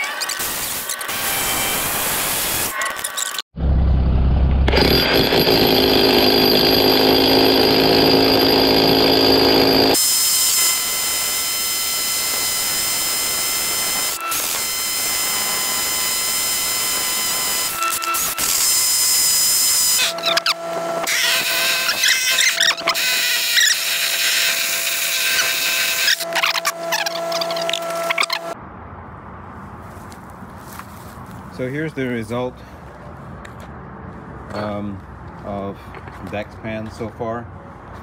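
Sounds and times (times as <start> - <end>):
hammer drill boring into concrete: 4.7 - 28.6.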